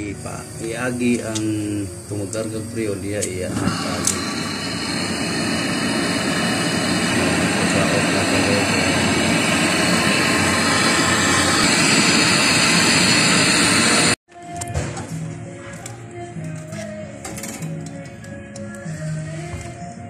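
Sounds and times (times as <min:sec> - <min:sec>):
gas torch hissing: 0:00.0 - 0:14.2.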